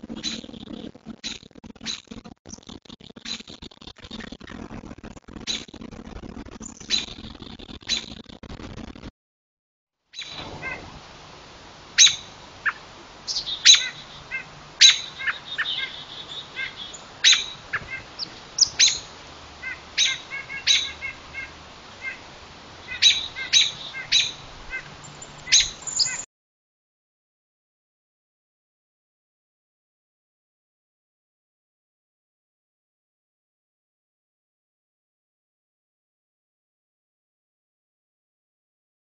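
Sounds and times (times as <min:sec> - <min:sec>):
small birds chipping: 0:00.0 - 0:04.2, 0:06.6 - 0:08.2, 0:10.2 - 0:26.3.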